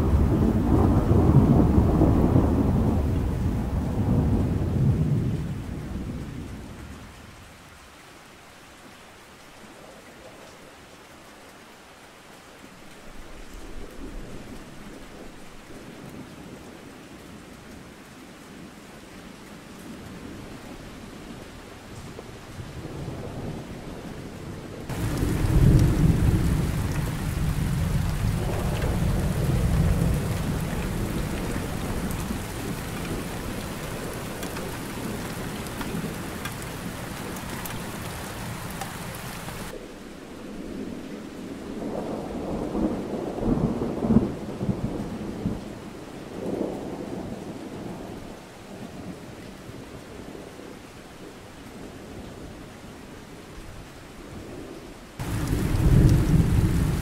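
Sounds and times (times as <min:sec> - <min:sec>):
rolling thunder: 0:00.0 - 0:07.0, 0:24.8 - 0:39.8, 0:41.6 - 0:45.7, 0:55.2 - 0:57.0
steady rain: 0:00.0 - 0:57.0.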